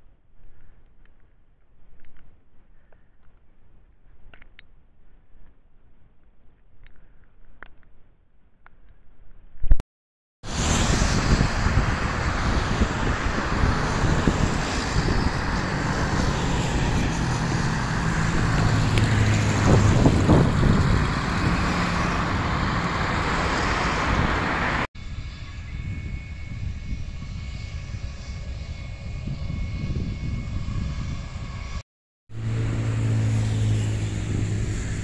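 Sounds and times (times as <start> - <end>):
wind noise: 10.4 - 31.8, 33.8 - 35.0
propeller plane droning overhead: 10.4 - 35.0.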